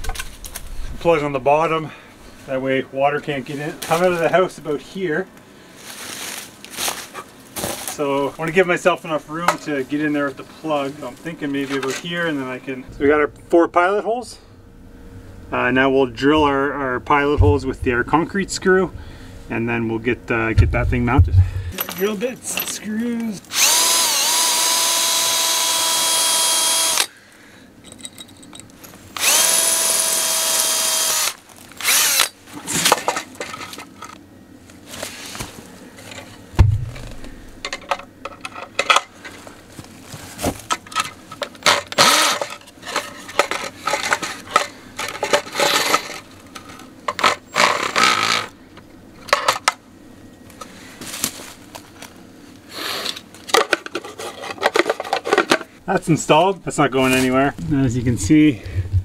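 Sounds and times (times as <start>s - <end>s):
cordless drill drilling into stone: 23.5s - 27.1s, 29.2s - 32.4s.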